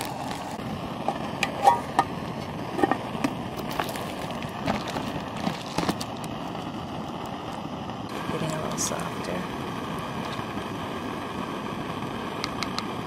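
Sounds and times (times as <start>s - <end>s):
foil insulation crinkling: 0.0s - 0.6s, 3.6s - 6.7s
metal pot taps: 1.1s - 2.1s, 2.8s - 3.0s.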